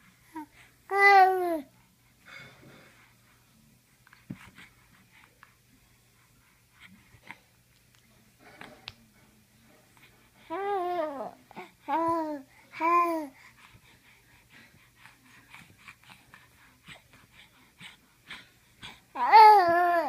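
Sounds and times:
baby cooing: 19.2s - 20.0s.

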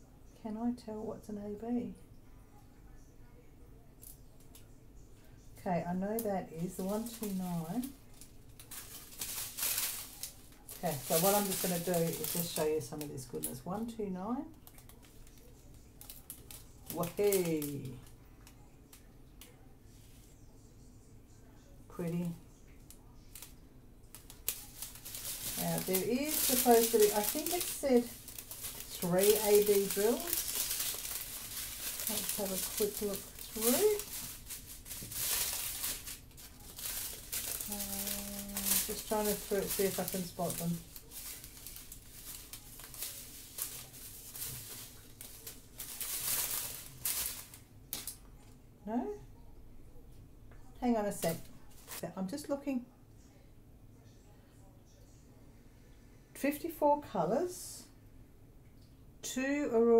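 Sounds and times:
low room hum: 0.0s - 59.9s
plastic bags rustling: 6.2s - 18.6s, 22.0s - 48.5s, 50.8s - 52.1s.

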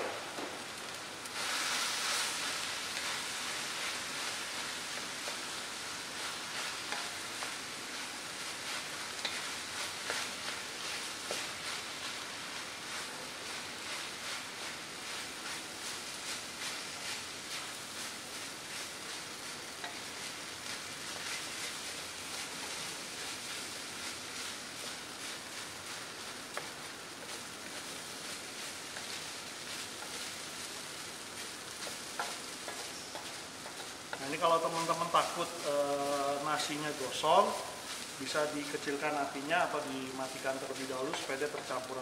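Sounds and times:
rice sizzling in a wok: 0.0s - 42.0s
spatula scraping a wok: 1.3s - 39.1s.

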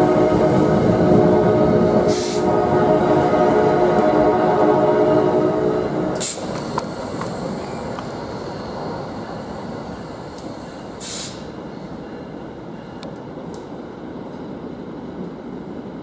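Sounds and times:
train rumble: 0.0s - 16.0s
air hisses: 2.1s - 2.5s, 6.2s - 8.7s, 9.4s - 11.6s.

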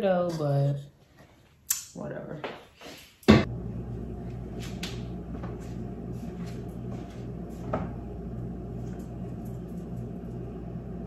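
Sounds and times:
low hum: 3.4s - 11.0s.

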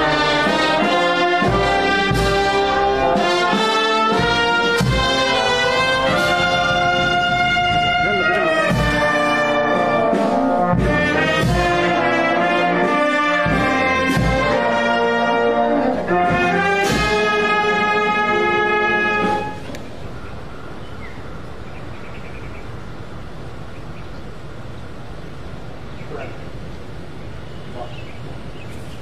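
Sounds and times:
brass band playing: 0.0s - 20.7s
low steady background noise: 0.0s - 29.0s.

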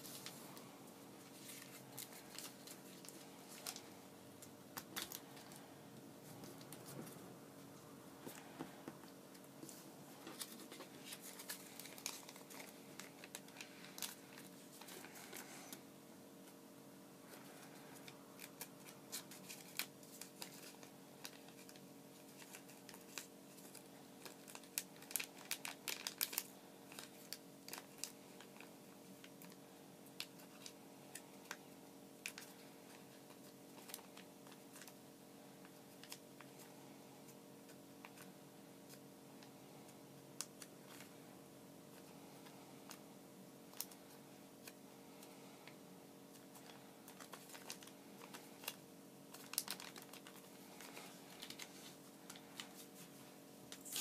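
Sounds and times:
steady low hum: 0.0s - 54.0s
paper crinkling and clicking: 1.3s - 5.6s, 10.2s - 15.8s, 17.3s - 29.6s, 32.2s - 35.0s, 35.6s - 36.7s, 40.4s - 41.1s, 43.7s - 53.1s.

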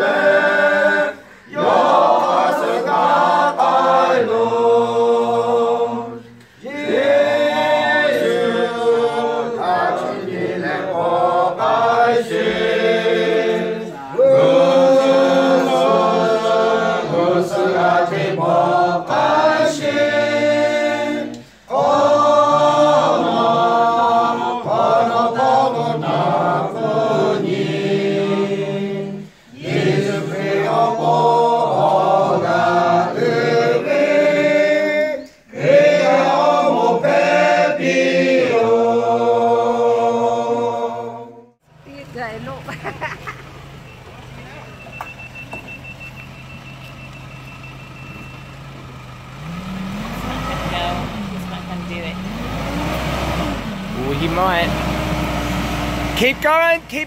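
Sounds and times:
choir singing: 0.0s - 41.6s.

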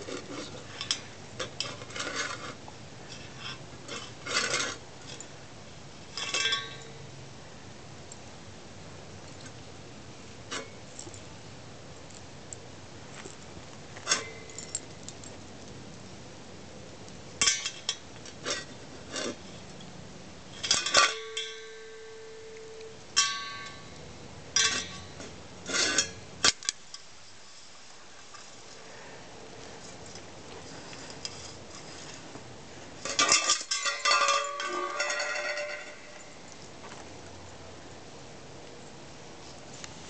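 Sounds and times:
dish clanking on concrete: 33.1s - 36.4s.

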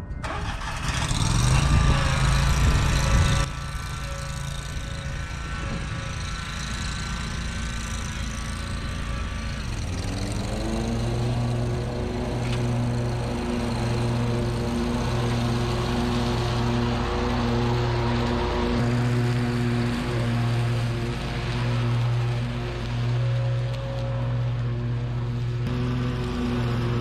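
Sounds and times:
mower engine running: 0.0s - 27.0s.

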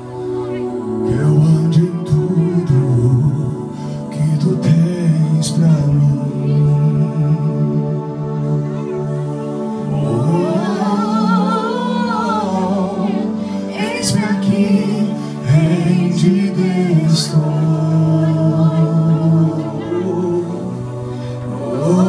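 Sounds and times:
sustained accompaniment chords: 0.0s - 22.0s
man and woman singing: 0.9s - 22.0s.

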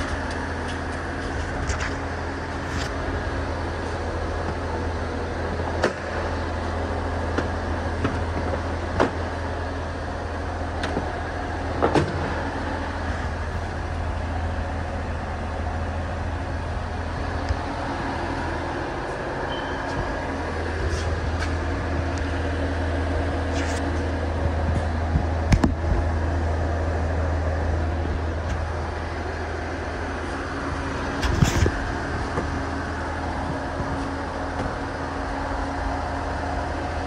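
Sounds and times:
low mechanical hum: 0.0s - 37.0s
sharp clicks and knocks: 23.6s - 26.1s.

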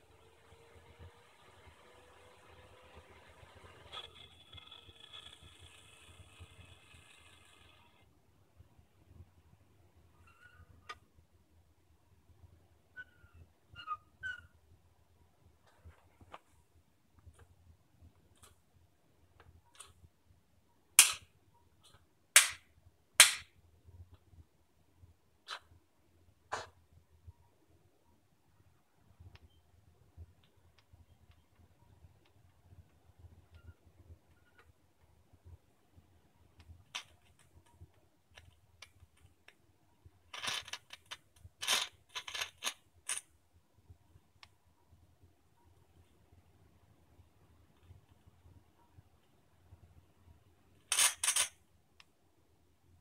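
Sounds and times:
overdriven computer fan crackling: 0.0s - 8.0s
loud sharp snaps: 23.2s - 23.5s.

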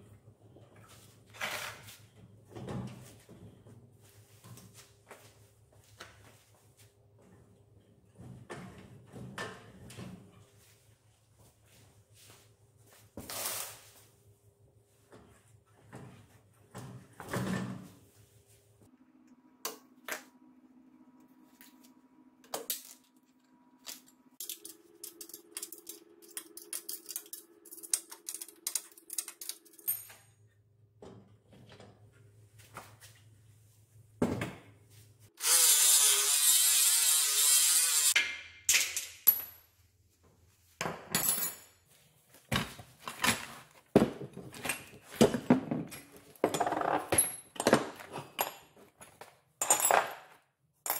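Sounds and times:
metal parts and tools clinking: 23.8s - 30.4s
power tool running: 35.4s - 38.2s.

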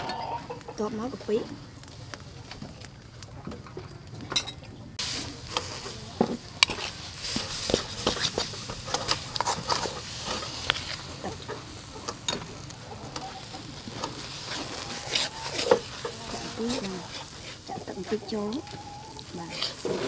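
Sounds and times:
metal spoon scraping wok: 5.0s - 20.0s
paste sizzling in hot oil: 5.0s - 20.0s.

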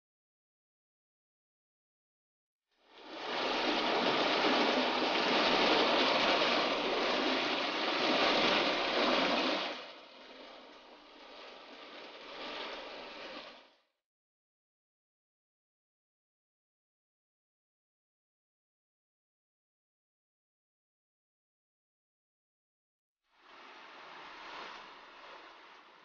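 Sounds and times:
water rushing: 2.8s - 13.9s, 23.3s - 26.0s.

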